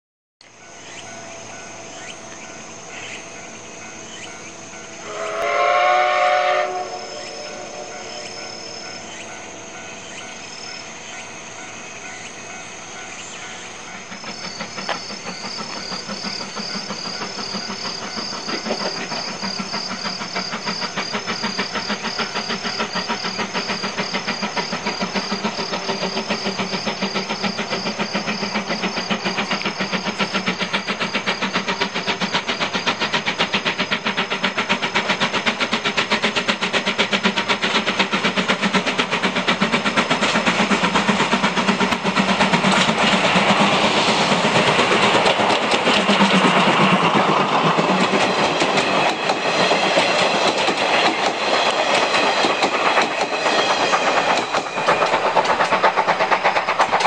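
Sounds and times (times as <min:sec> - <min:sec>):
steam locomotive exhaust chuffs: 0:00.4 - 0:57.0
steam whistle blast: 0:05.0 - 0:09.1.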